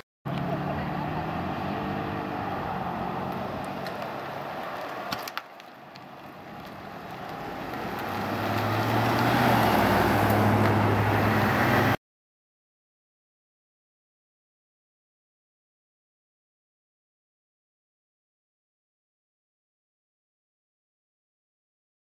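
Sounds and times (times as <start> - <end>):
vehicle approaching: 0.3 - 12.0
vehicle engine hum: 0.3 - 12.0.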